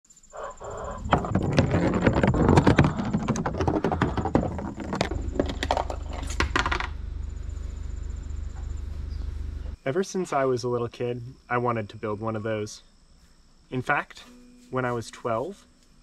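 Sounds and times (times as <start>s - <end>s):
egg rolling down a wooden chute: 0.6s - 7.0s.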